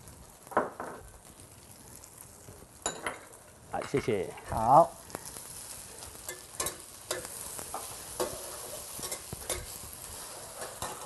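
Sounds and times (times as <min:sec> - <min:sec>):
food sizzling in hot oil: 0:00.0 - 0:11.0
metal spatula scraping a wok: 0:05.6 - 0:11.0.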